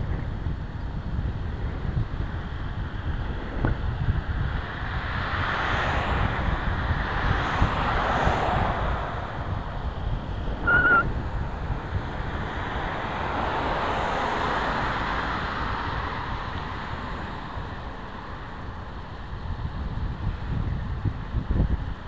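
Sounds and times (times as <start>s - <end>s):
road rumble: 0.0s - 22.0s
wind buffeting microphone: 0.0s - 22.0s
brief high whistle-like tone: 10.6s - 11.1s.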